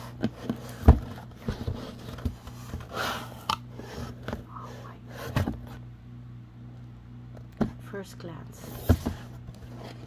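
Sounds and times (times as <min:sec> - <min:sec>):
cardboard box knocks and scrapes: 0:00.2 - 0:03.1, 0:08.7 - 0:10.0.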